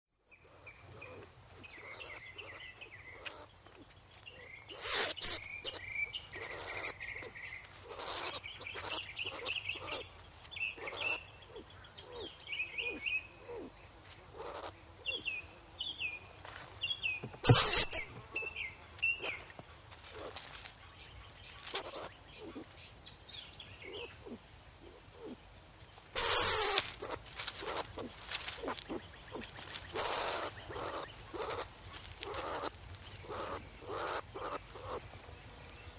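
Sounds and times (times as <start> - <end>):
animal chirps and squeaks: 0.3 - 1.2, 1.8 - 3.5, 4.3 - 10.0, 10.7 - 13.7, 14.4 - 15.2, 17.4 - 19.5, 21.5 - 22.7, 26.2 - 35.0
animal hissing bursts: 4.7 - 5.8, 26.1 - 27.8.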